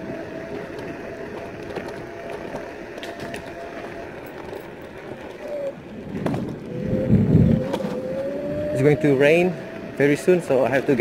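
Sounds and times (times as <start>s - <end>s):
tyre rumble on paving: 0.0s - 8.1s
electric motor whine: 0.0s - 11.0s
low rumble: 5.8s - 10.1s.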